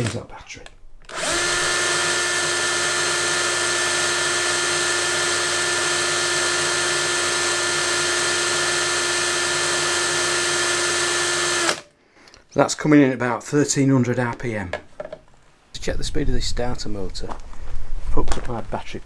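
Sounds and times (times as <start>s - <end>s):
cordless drill motor whine: 1.1s - 11.8s.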